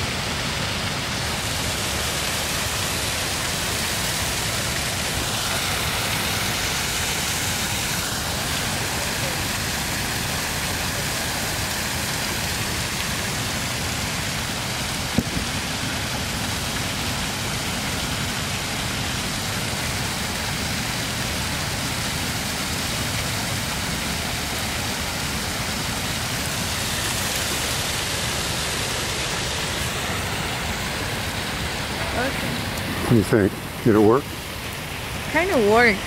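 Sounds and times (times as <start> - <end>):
waterfall rushing over rocks: 0.0 - 36.0.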